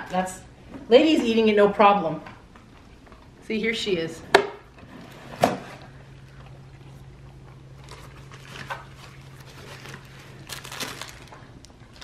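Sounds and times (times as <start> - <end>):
steady low hum: 0.0 - 12.0
dog chewing crunches: 6.3 - 12.0.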